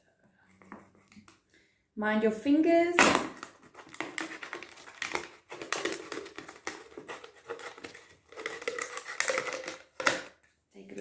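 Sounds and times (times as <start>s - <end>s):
knife sawing through plastic bottle: 3.4s - 9.9s.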